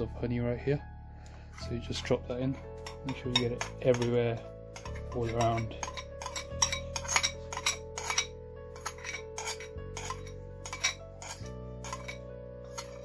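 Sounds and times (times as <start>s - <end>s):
background music with held notes: 0.0s - 13.0s
metal spoon scraping china bowl: 2.8s - 13.0s.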